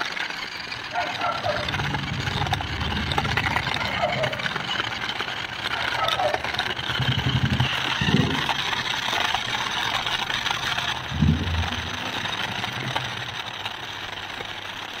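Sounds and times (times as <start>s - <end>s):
toy car motors whirring: 0.0s - 15.0s
wheels crunching on gritty ground: 0.0s - 15.0s.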